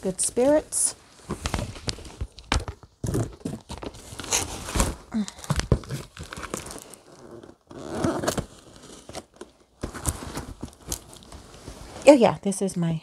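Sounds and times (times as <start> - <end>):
tape tearing and crackling: 1.4 - 11.7.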